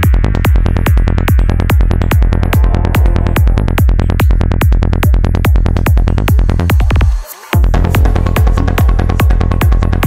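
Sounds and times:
psytrance kick drum and bassline: 0.0 - 10.0
high synth pattern: 1.6 - 5.5.

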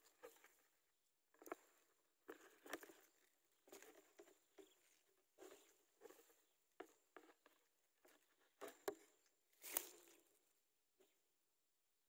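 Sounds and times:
dry grass rustling and crackling: 9.5 - 10.3.

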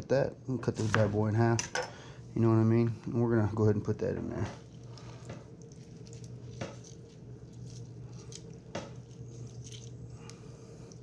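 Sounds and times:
steady low hum: 0.0 - 11.0
fruit squishing: 4.6 - 11.0
juice dripping: 4.6 - 11.0.

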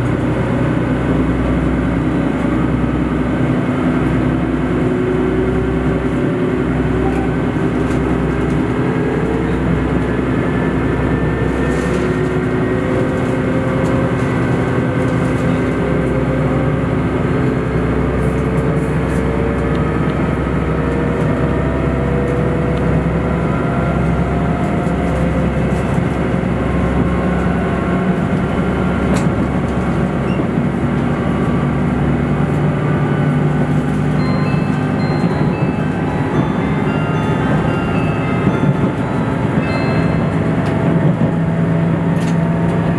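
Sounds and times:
train diesel engine accelerating: 0.0 - 42.9.

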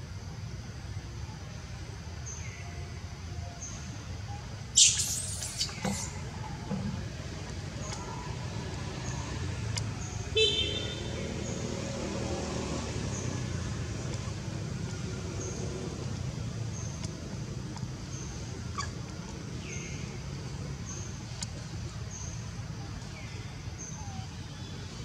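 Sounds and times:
road traffic rumble: 0.0 - 25.0
vehicle horn toot: 10.4 - 11.1.

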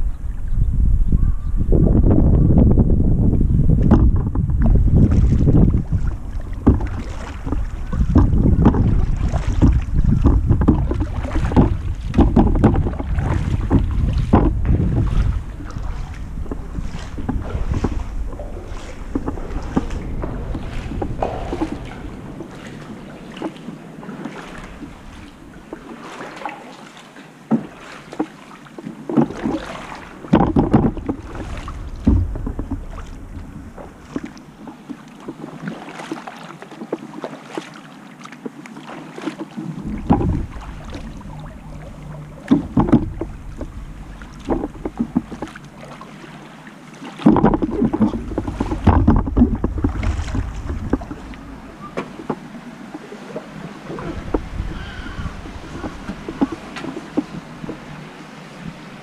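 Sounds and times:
wind buffeting microphone: 0.0 - 26.1, 29.2 - 35.5, 39.6 - 46.0, 47.2 - 59.0
paddle splashing in water: 3.7 - 59.0
water running off paddle: 3.7 - 59.0.

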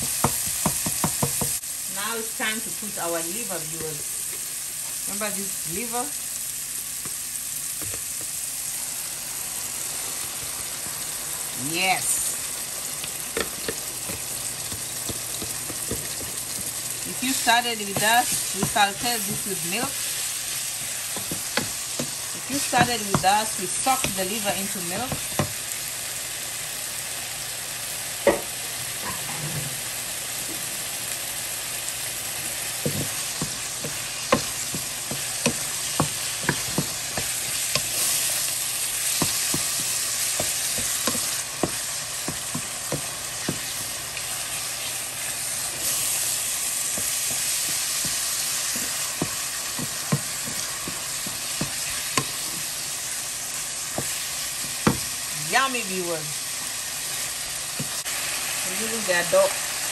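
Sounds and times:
wooden spoon knocking and scraping pan: 0.0 - 1.6, 13.0 - 25.6, 32.5 - 52.9, 53.8 - 55.1
food sizzling in a pan: 0.0 - 59.9.

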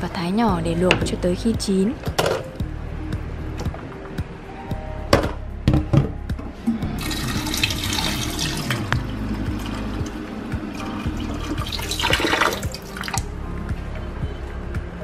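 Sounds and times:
tap water running into bowl: 7.0 - 10.2, 10.8 - 13.3.

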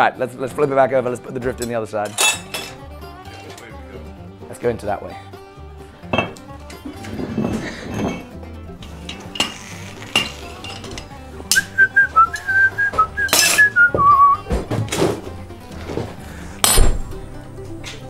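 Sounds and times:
person whistling a tune: 11.5 - 14.5
metal tools tapping steel: 13.2 - 13.8.

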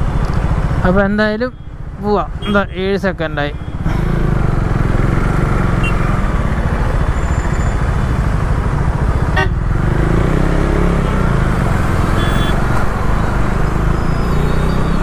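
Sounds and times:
horn toot: 9.3 - 9.6, 12.1 - 12.6.

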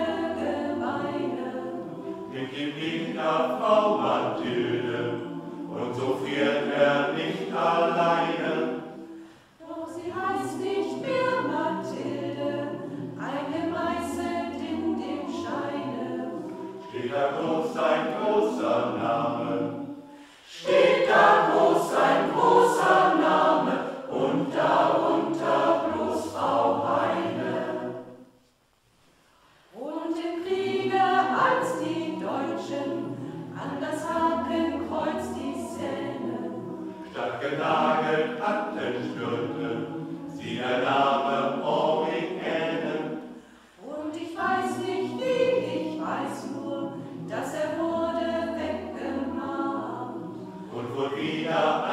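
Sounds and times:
choir singing unaccompanied: 0.0 - 28.4, 29.7 - 51.9.

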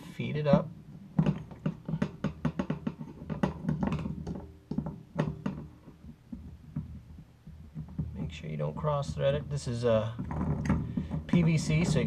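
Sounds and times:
sink strainer clicks and knocks: 1.2 - 7.0.

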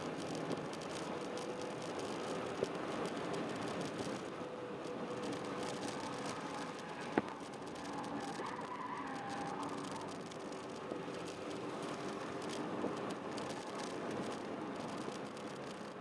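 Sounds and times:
car engine running at speed: 0.0 - 16.0
road and wind noise: 0.0 - 16.0.

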